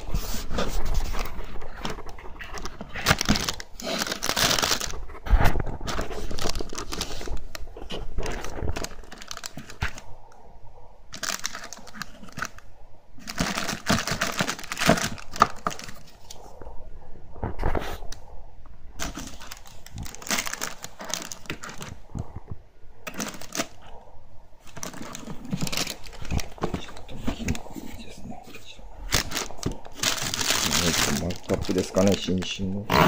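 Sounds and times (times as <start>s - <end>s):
cardboard and plastic rustling: 0.0s - 10.1s, 11.1s - 16.6s, 18.9s - 32.8s.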